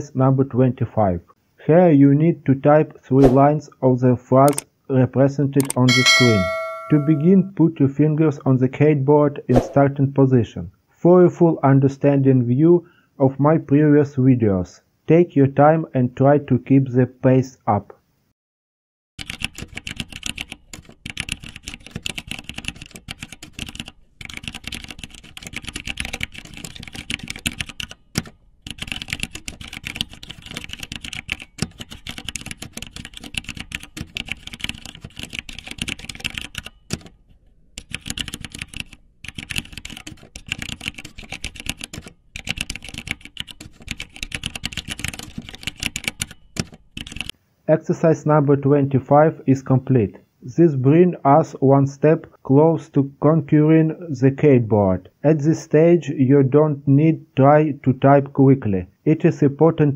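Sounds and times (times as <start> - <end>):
keyboard typing: 19.2 - 37.2, 37.8 - 47.3.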